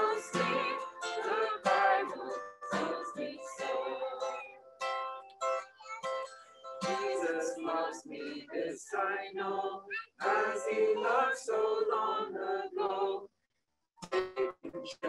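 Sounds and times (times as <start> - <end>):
people singing a church song: 0.0 - 4.4, 6.8 - 13.3
strummed acoustic guitar: 0.0 - 8.4, 14.0 - 14.9.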